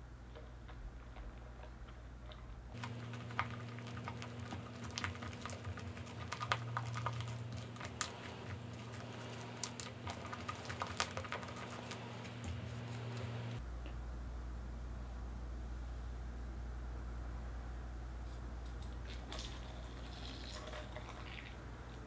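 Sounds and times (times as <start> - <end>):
wet squishing of foam: 2.7 - 13.6.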